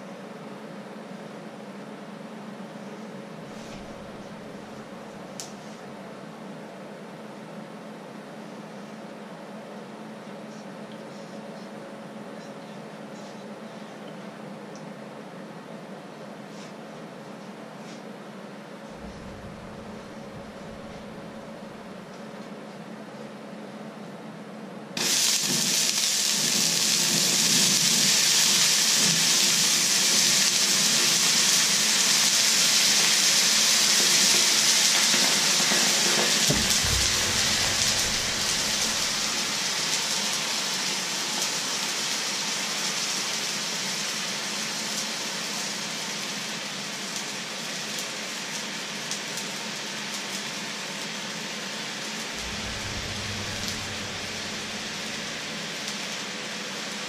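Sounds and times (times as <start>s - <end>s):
water hissing in hot pan: 3.5s - 5.4s, 19.0s - 22.0s, 25.0s - 57.0s.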